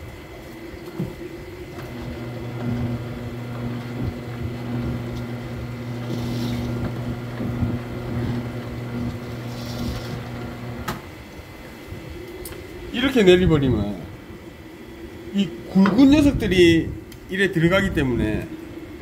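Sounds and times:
slicing machine motor humming: 1.7s - 11.1s.

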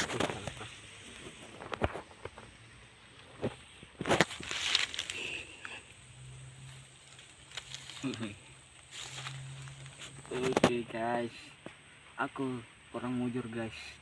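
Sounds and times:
rustling in dry leaves: 0.0s - 10.7s
low steady hum: 0.0s - 14.0s.

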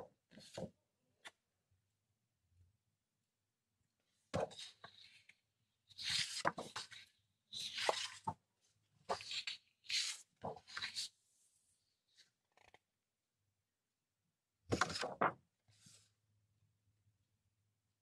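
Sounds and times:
paper sheets rustling and slapping: 7.6s - 8.3s, 9.1s - 11.1s, 14.7s - 15.3s.

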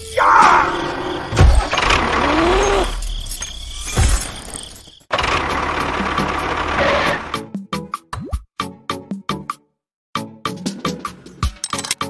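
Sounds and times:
tractor engine running: 5.1s - 7.4s.

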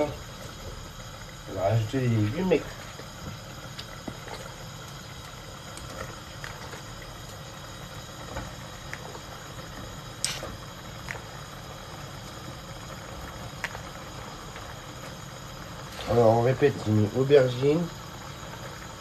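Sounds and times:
steady low hum: 0.0s - 19.0s
cooking utensils clicking and knocking: 10.2s - 10.6s.

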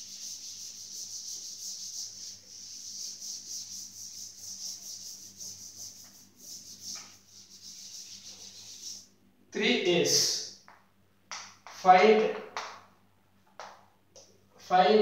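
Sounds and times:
duster rubbing on blackboard: 0.0s - 9.1s.

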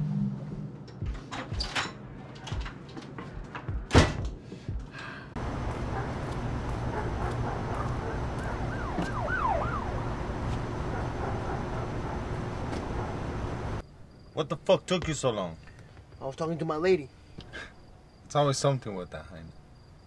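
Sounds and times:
night ambience rumble: 5.3s - 20.0s
distant siren wailing: 5.4s - 13.8s.

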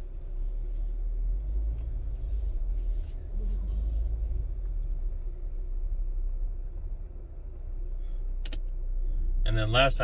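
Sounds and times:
engine and tyre rumble: 0.0s - 10.0s.

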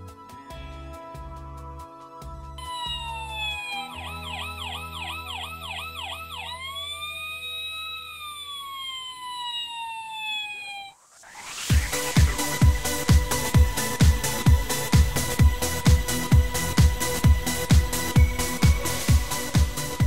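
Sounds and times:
electronic siren wailing: 2.6s - 13.6s
rushing whoosh: 11.0s - 13.3s.

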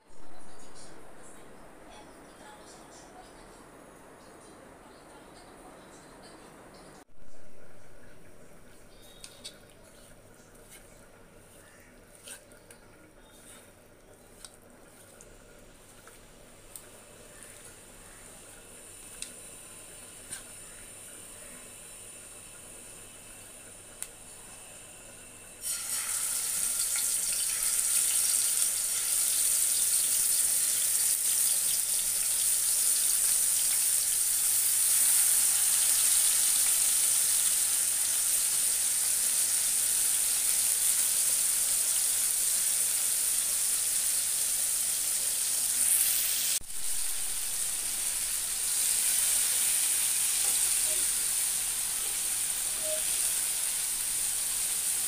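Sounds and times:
fish sizzling in hot oil: 25.6s - 55.0s.

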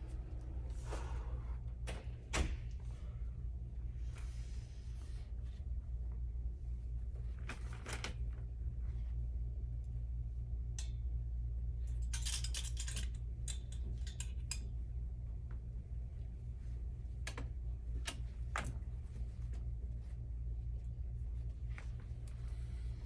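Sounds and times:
steady low hum: 0.0s - 23.0s
hangers clicking on metal rail: 11.9s - 14.7s.

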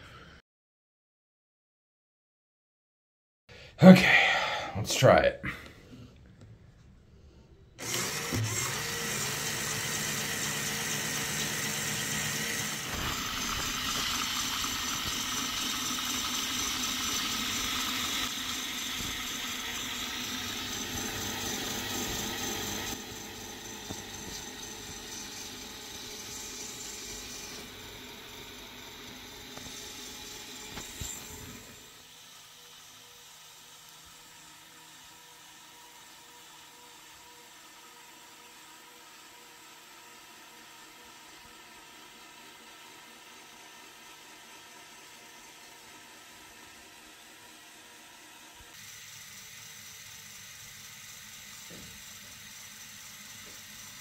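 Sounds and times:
motor whirring with gear chatter: 7.8s - 54.0s.

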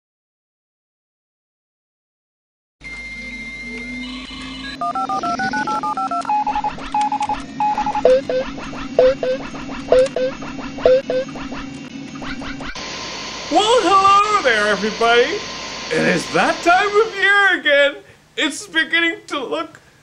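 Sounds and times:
steady hum: 2.9s - 18.6s
touch-tone dialing tones: 4.3s - 11.3s.

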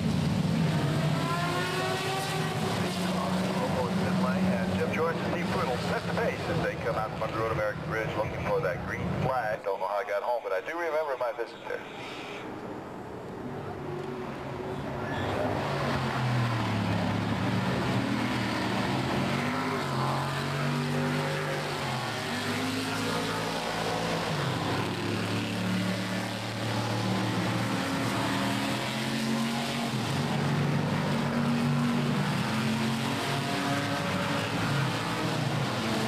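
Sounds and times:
race car engines: 0.0s - 36.0s.

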